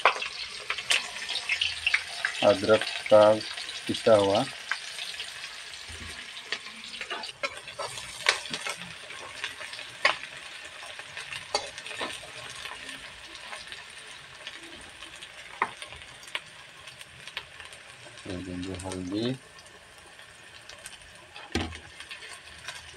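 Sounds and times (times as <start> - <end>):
onions sizzling in oil: 0.0 - 22.9.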